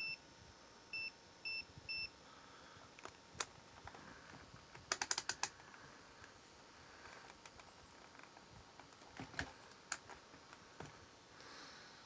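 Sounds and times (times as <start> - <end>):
multimeter short high beeps: 0.0 - 0.2, 0.9 - 2.2
rotary switch clicks: 4.8 - 5.6.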